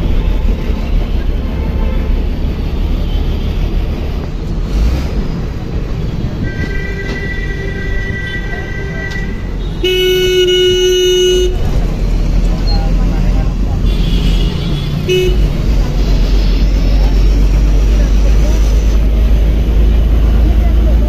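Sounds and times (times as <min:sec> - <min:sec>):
bus rumbling: 0:00.0 - 0:21.0
street traffic: 0:00.0 - 0:21.0
vehicle horn: 0:06.4 - 0:11.7, 0:13.8 - 0:15.5
harsh horn blast: 0:06.4 - 0:11.8, 0:13.8 - 0:16.5.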